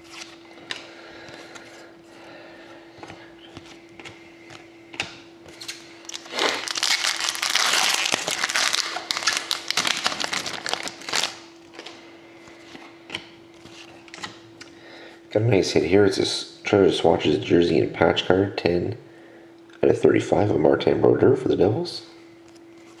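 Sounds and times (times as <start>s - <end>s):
foil wrapper crackling: 6.0s - 11.9s.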